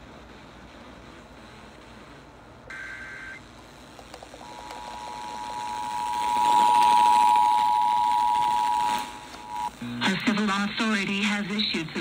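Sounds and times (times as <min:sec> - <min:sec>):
faint radio static hiss: 0:00.0 - 0:12.0
two-tone alert signal: 0:04.4 - 0:09.7.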